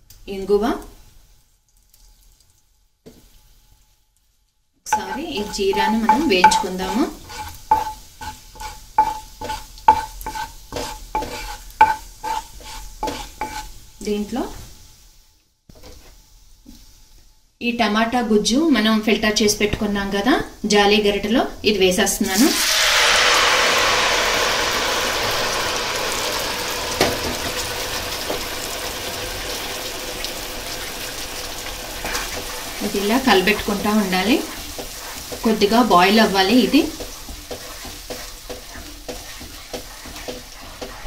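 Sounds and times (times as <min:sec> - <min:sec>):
seeds sizzling in oil: 0:00.0 - 0:20.0, 0:21.7 - 0:41.0
wooden spatula scraping pan: 0:04.9 - 0:13.9, 0:15.7 - 0:16.8, 0:31.8 - 0:41.0.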